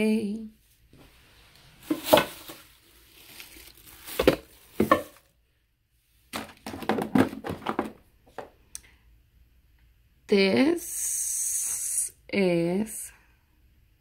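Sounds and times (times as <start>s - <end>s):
plastic bottles clicking and knocking: 1.8s - 2.6s, 4.0s - 5.2s, 6.3s - 8.5s.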